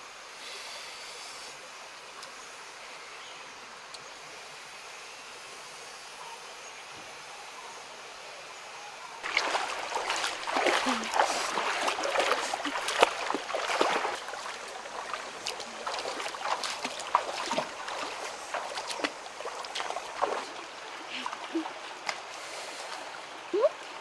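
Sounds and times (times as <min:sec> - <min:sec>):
stream flowing: 0:07.5 - 0:24.0
feet splashing in water: 0:09.2 - 0:23.7.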